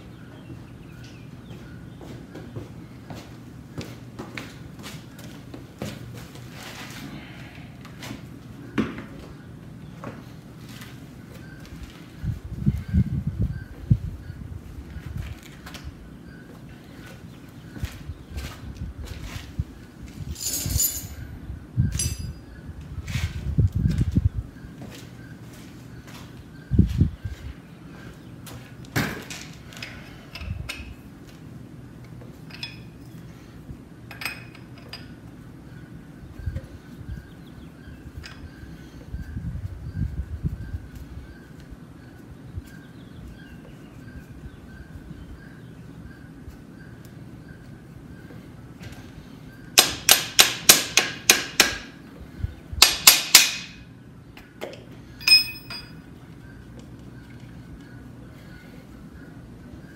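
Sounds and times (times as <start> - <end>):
metal tools clinking: 20.3 - 21.2, 21.9 - 22.4, 32.5 - 33.2, 34.1 - 35.2, 55.2 - 56.0
hand tool striking metal: 52.8 - 53.8, 55.2 - 56.0.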